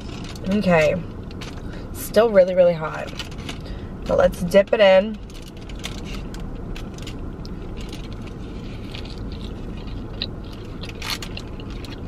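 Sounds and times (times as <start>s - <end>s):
aluminium foil crinkling: 0.0s - 1.7s, 5.1s - 12.0s
crunchy taco chewing: 0.0s - 1.8s, 5.2s - 12.0s
low rumble inside car: 0.0s - 12.0s.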